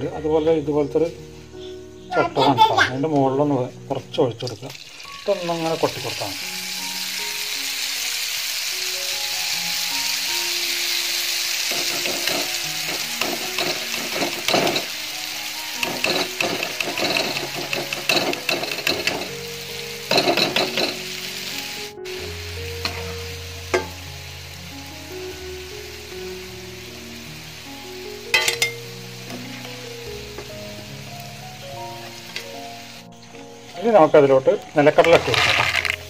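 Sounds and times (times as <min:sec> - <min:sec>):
batter frying in hot oil: 0:03.9 - 0:36.0
metal taps on ladle: 0:28.4 - 0:28.8.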